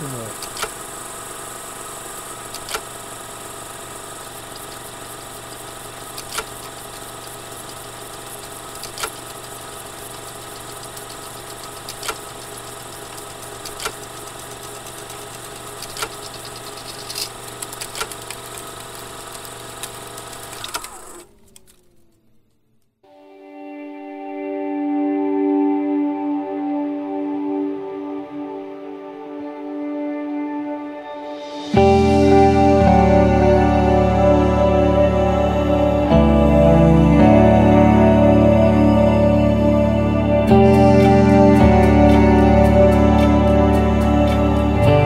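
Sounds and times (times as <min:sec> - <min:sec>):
sharp clicks: 0:00.0 - 0:00.9, 0:02.3 - 0:03.0, 0:04.2 - 0:22.6
mechanical motor hum: 0:00.0 - 0:23.0.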